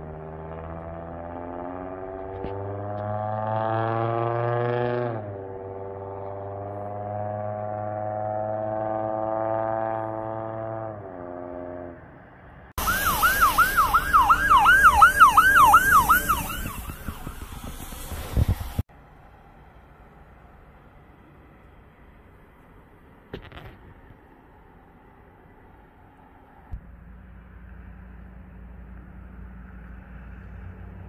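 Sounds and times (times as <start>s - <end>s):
road noise: 0.0s - 31.0s
fire truck siren fast yelp: 12.8s - 18.8s
siren slow wail: 12.8s - 18.8s.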